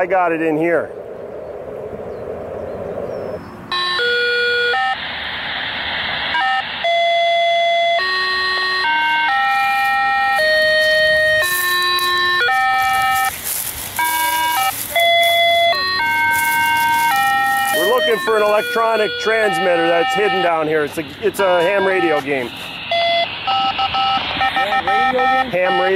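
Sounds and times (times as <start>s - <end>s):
radio hiss: 4.8s - 25.9s
electronic beep tones: 6.4s - 13.3s, 14.0s - 25.9s.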